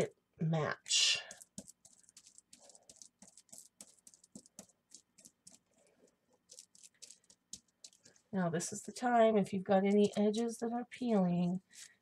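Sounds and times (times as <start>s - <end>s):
brush scratching on paper: 1.3s - 5.9s, 6.5s - 8.2s
plastic sheeting crinkling: 1.3s - 9.1s.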